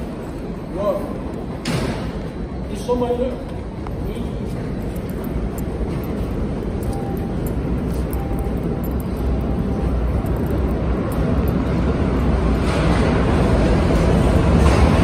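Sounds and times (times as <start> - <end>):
subway train rumble: 0.0 - 15.0.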